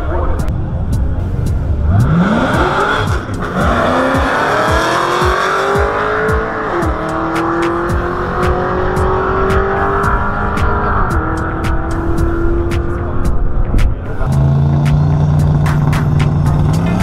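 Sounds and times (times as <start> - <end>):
racing car accelerating: 0.5 - 17.0.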